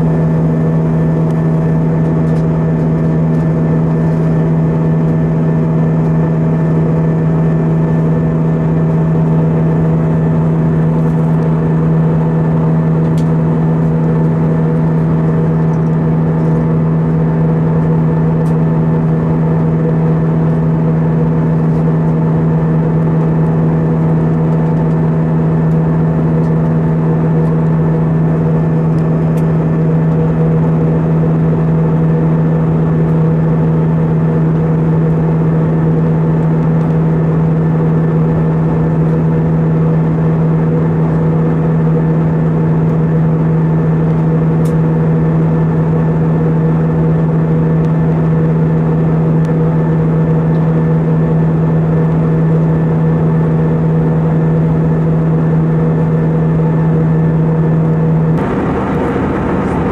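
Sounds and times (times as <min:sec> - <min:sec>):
aircraft cabin engine drone: 0:58.4 - 0:59.9.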